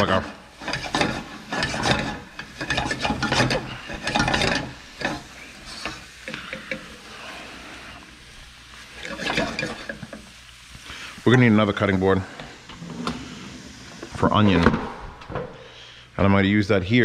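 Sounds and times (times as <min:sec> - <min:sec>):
kitchen tools clicking and scraping: 0:00.0 - 0:08.0, 0:08.8 - 0:10.4.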